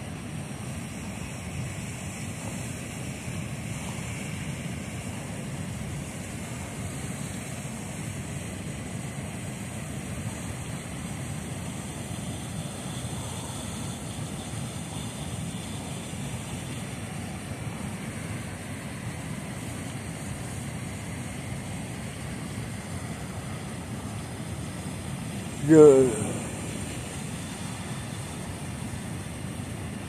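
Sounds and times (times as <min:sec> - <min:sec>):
river water rushing: 0:25.2 - 0:29.5.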